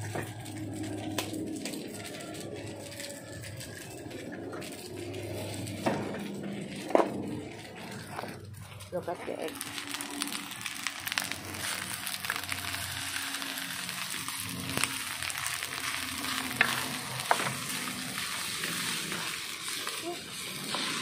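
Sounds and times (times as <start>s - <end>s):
rice and egg sizzling in wok: 0.0s - 21.0s
wooden spatula scraping: 3.1s - 10.3s, 14.3s - 21.0s.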